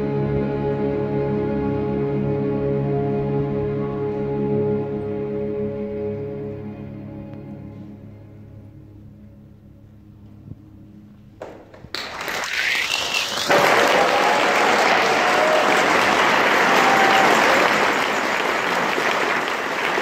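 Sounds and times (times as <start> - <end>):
audience applause: 11.4 - 20.0.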